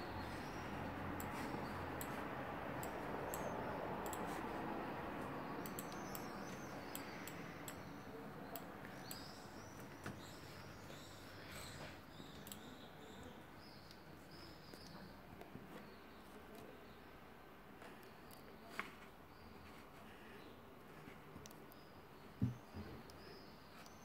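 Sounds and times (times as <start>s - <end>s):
light clicks: 2.8s - 4.3s, 5.6s - 6.3s.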